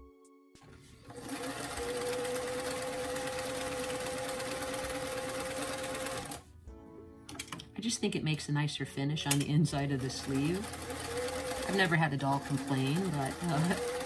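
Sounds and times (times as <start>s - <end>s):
sewing machine running: 1.0s - 6.4s, 9.8s - 14.0s.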